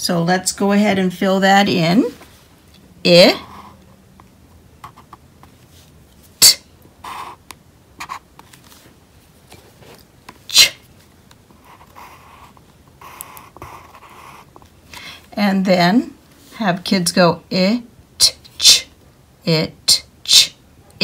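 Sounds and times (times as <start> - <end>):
marker scratching on paper: 3.3 - 3.8, 7.0 - 8.4, 11.6 - 14.7.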